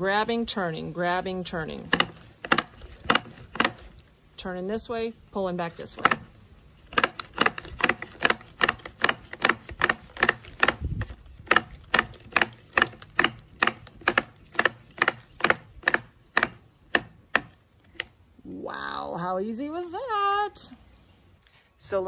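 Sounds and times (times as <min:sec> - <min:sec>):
trimmer head clicking: 0:01.6 - 0:04.0, 0:05.8 - 0:18.2.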